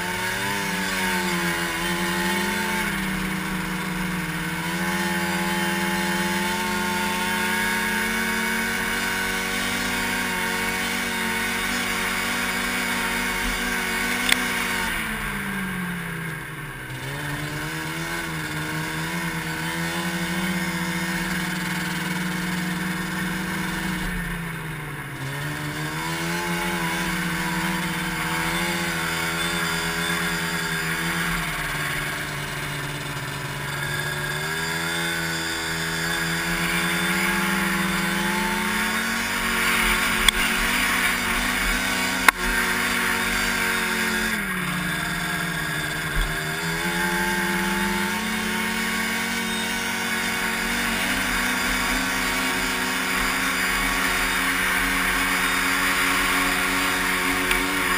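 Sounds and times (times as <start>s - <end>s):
snowmobile engine running: 0.0s - 57.9s
sharp click: 14.2s - 14.4s.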